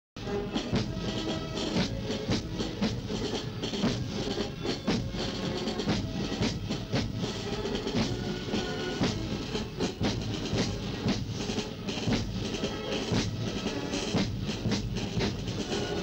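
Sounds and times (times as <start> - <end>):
band playing march music: 0.2 - 16.0
steady drum beat: 0.2 - 16.0.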